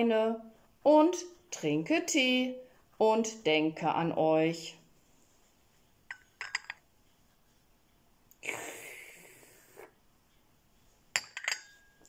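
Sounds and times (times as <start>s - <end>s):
cup clinking against saucer: 6.1s - 6.8s, 11.2s - 12.0s.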